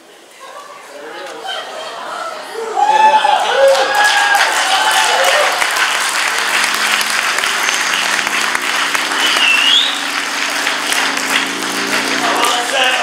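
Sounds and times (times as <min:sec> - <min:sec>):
audience applauding: 0:03.0 - 0:13.0
short rising whistle: 0:09.2 - 0:10.2.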